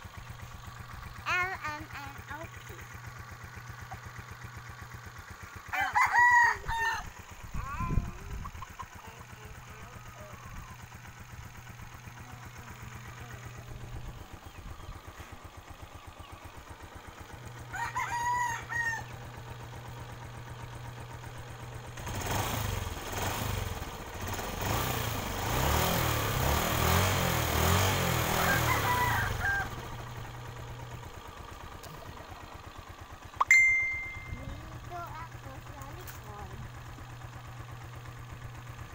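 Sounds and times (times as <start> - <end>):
motorcycle engine idling and revving: 0.0 - 38.9
rooster crowing: 5.7 - 7.1, 17.7 - 19.2, 28.3 - 30.0.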